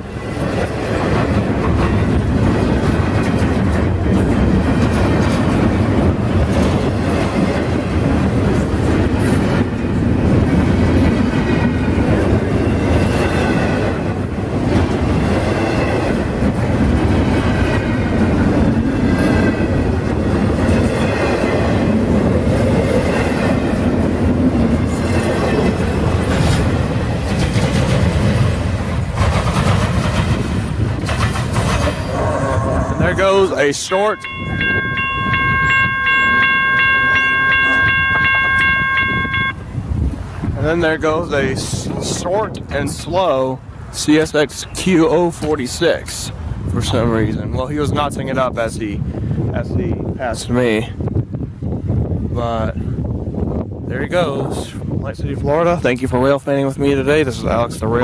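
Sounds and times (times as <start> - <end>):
train wheels rumbling over rail joints: 0.0 - 36.6.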